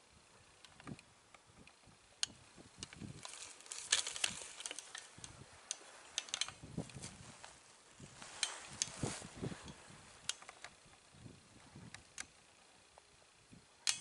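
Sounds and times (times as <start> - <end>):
rustling in dry grass: 1.8 - 12.0.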